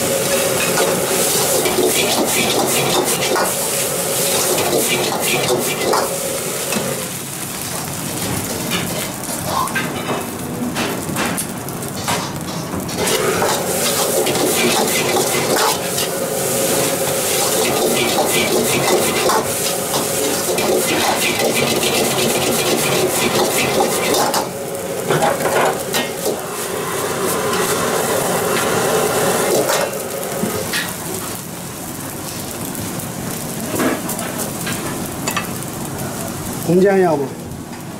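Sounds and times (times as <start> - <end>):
rice sizzling: 0.0 - 37.9
metal ladle scraping a wok: 17.3 - 24.5.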